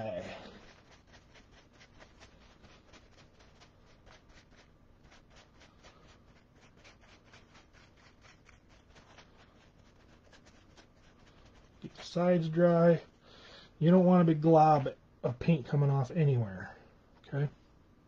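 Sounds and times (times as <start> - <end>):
paintbrush rubbing: 0.0 - 13.1.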